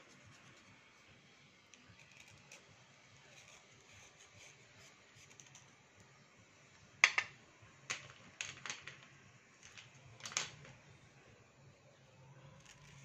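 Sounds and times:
blade scraping slate pencil: 0:01.8 - 0:05.7.

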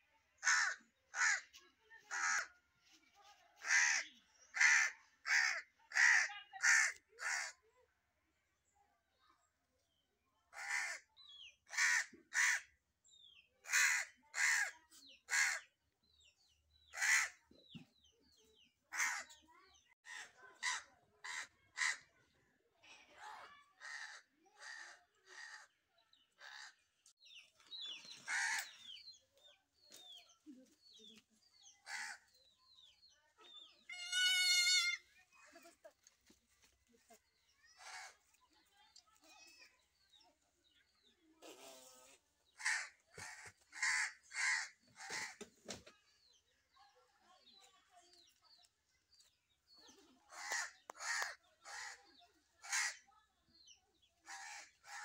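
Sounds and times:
crow cawing: 0:10.6 - 0:11.0, 0:23.8 - 0:25.7, 0:28.3 - 0:28.8, 0:31.8 - 0:32.2, 0:42.6 - 0:45.4, 0:50.3 - 0:52.0.

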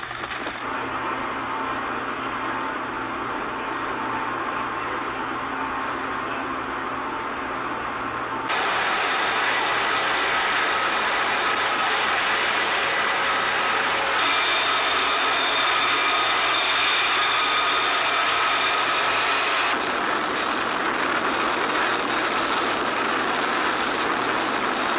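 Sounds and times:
high whining tones: 0:08.5 - 0:19.8
machine rushing noise: 0:08.5 - 0:24.4.

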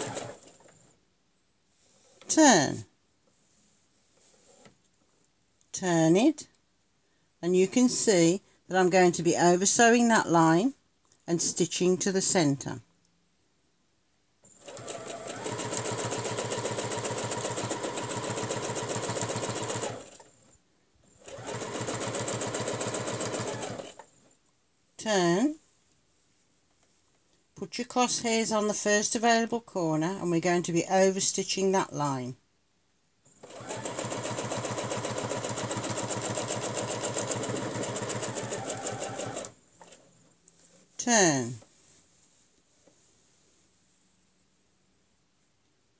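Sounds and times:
sewing machine stitching: 0:00.0 - 0:00.8, 0:14.5 - 0:20.4, 0:21.1 - 0:24.1, 0:33.4 - 0:40.0.

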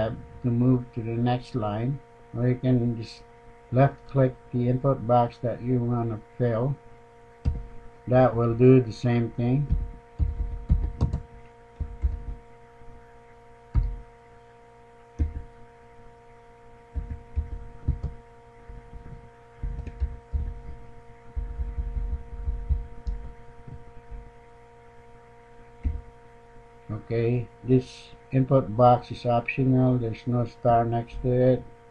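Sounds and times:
electrical hum: 0:00.0 - 0:31.9
keyboard keystroke thumps: 0:07.4 - 0:07.7, 0:09.6 - 0:12.4, 0:13.7 - 0:14.0, 0:15.2 - 0:15.5, 0:16.9 - 0:20.8, 0:21.4 - 0:24.2, 0:25.8 - 0:26.1.

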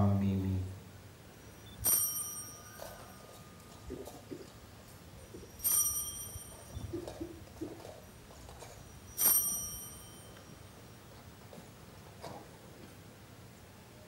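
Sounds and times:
altar bell ringing: 0:01.3 - 0:11.1.

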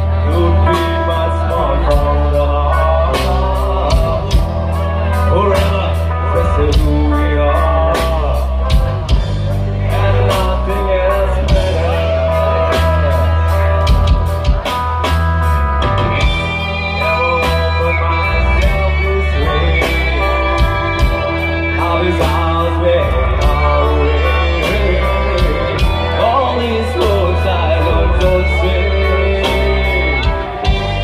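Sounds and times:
person singing: 0:00.0 - 0:15.0, 0:15.9 - 0:31.0
electric guitar: 0:00.0 - 0:31.0
heavy bass: 0:00.0 - 0:31.0
drum beat: 0:12.7 - 0:17.9, 0:29.4 - 0:31.0.

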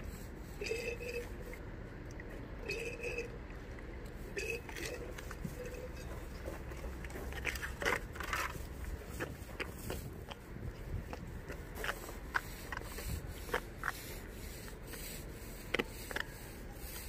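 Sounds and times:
trowel crunching scrapes: 0:06.8 - 0:10.3.

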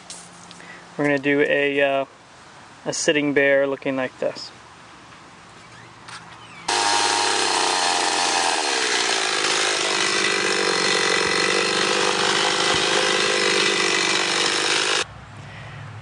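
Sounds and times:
chainsaw cutting log: 0:06.7 - 0:15.1.

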